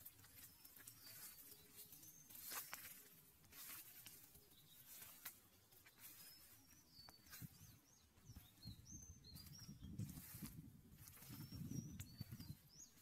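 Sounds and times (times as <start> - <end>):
dry leaves crackling: 0.0 - 7.6
small birds chirping: 0.0 - 13.0.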